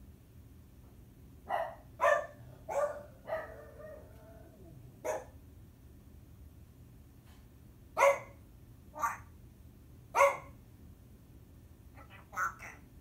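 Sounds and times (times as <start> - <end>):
parrot imitating dog barks: 8.9 - 9.3, 12.0 - 12.9.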